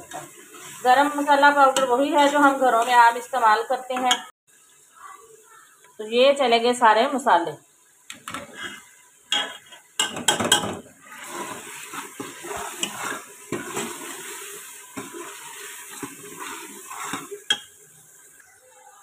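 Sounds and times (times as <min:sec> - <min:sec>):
oil sizzling: 0:00.0 - 0:19.0
metal spoon clinking and scraping pot: 0:08.2 - 0:17.8.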